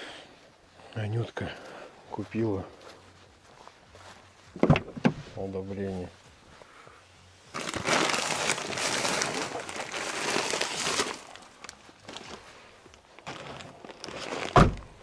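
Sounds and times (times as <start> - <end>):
car door slamming: 4.6 - 5.2, 14.5 - 14.9
plastic bags rustling: 7.5 - 15.0.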